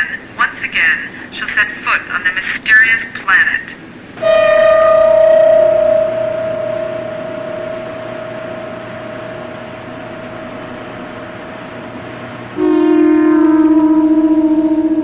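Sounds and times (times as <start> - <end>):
steady hiss: 0.0 - 15.0
held tone: 4.2 - 15.0.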